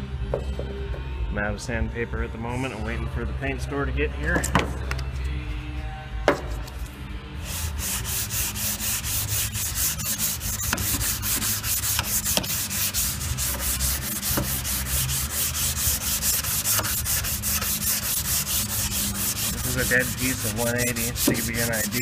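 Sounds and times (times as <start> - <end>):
hand sanding scratching strokes: 7.4 - 22.0.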